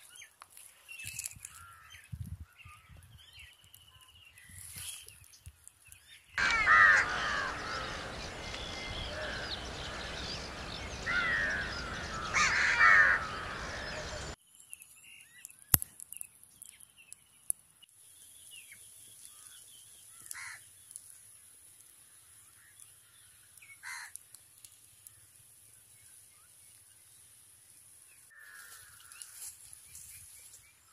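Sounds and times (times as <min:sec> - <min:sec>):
crows cawing: 0:06.4 - 0:14.4, 0:20.1 - 0:20.6, 0:23.8 - 0:24.2, 0:28.3 - 0:29.5
outdoor noise rush: 0:06.4 - 0:14.4
faint bird chirps: 0:06.4 - 0:15.7
wood fire cracking: 0:19.2 - 0:26.0.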